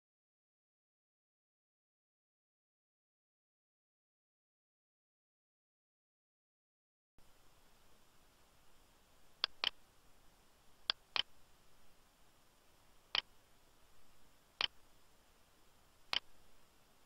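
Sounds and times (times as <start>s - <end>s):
faint hiss: 7.2s - 17.0s
mouse button clicking: 9.4s - 9.8s, 10.8s - 11.3s.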